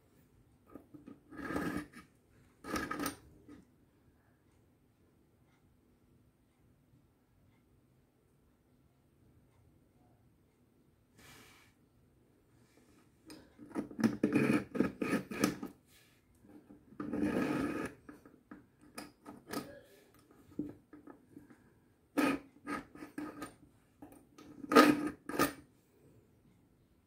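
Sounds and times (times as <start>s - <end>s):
knife grinding in sharpener: 1.3s - 2.0s, 2.6s - 3.2s, 13.3s - 15.7s, 17.0s - 18.2s, 22.2s - 23.6s, 24.4s - 25.6s.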